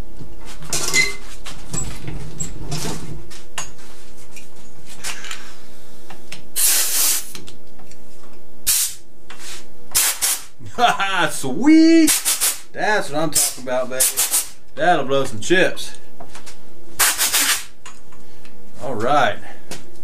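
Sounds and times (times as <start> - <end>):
compressed air blow gun hissing: 6.6 - 7.3, 8.7 - 9.0, 10.0 - 10.5, 12.1 - 12.6, 17.0 - 17.7.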